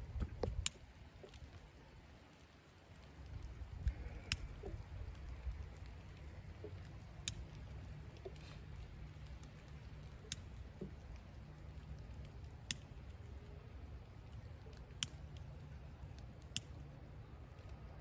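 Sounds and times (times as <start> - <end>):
low steady rumble: 0.0 - 18.0
sticks snapping: 3.2 - 6.0, 6.8 - 8.6, 9.2 - 11.0, 12.1 - 13.2, 14.6 - 16.8.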